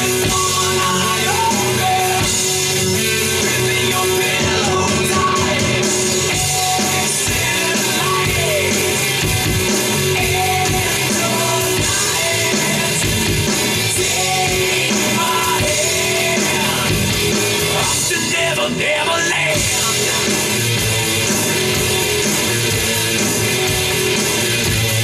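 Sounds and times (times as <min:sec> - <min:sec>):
electronic drum kit: 0:00.0 - 0:25.0
rock song with singing: 0:00.0 - 0:25.0.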